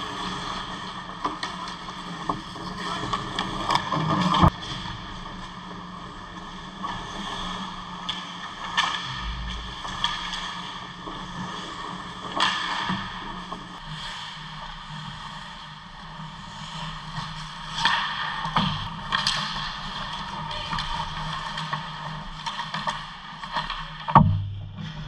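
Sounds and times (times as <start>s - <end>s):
steady low hum: 9.0s - 10.6s.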